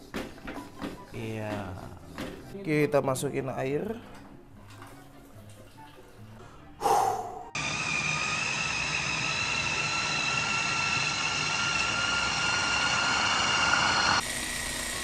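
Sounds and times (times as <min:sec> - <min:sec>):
food chopper motor whining: 0:07.6 - 0:15.0.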